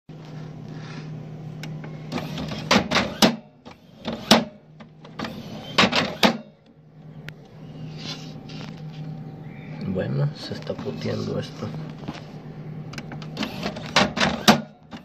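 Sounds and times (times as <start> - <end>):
printer hum: 0.1 - 15.0
printer carriage slamming: 2.1 - 4.6, 5.2 - 6.5, 13.2 - 15.0.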